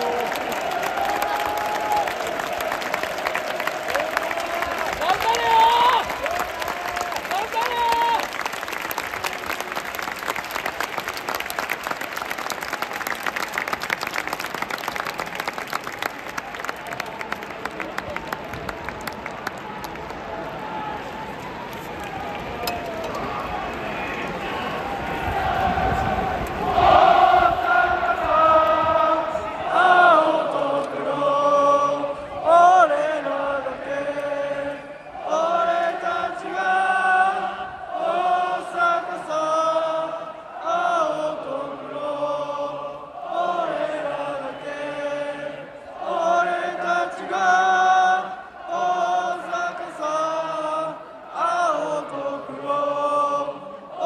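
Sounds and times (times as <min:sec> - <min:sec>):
crowd applauding: 0:00.0 - 0:28.9
crowd singing a chant: 0:24.3 - 0:54.0.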